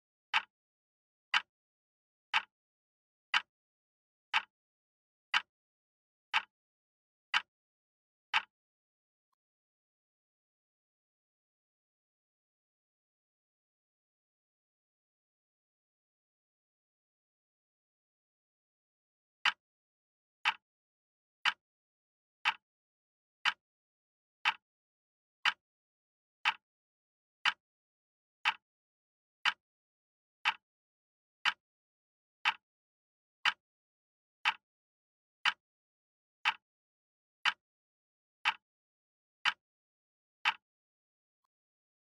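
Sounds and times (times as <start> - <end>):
timer ticks: 0.3 - 0.5, 1.3 - 1.5, 2.3 - 2.5, 3.3 - 3.5, 4.3 - 4.5, 5.3 - 5.5, 6.3 - 6.5, 7.3 - 7.5, 8.3 - 8.5, 19.4 - 19.6, 20.4 - 20.6, 21.4 - 21.6, 22.4 - 22.6, 23.4 - 23.6, 24.4 - 24.6, 25.4 - 25.6, 26.4 - 26.6, 27.4 - 27.6, 28.4 - 28.7, 29.4 - 29.6, 30.4 - 30.6, 31.4 - 31.6, 32.4 - 32.6, 33.4 - 33.6, 34.4 - 34.6, 35.4 - 35.6, 36.4 - 36.6, 37.4 - 37.6, 38.4 - 38.6, 39.4 - 39.6, 40.4 - 40.6.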